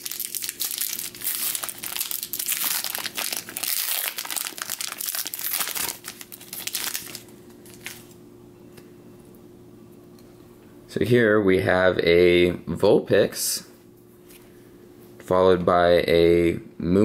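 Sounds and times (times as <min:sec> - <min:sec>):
foil wrapper crinkling and tearing: 0:00.0 - 0:08.2
faint steady hum: 0:00.0 - 0:17.0.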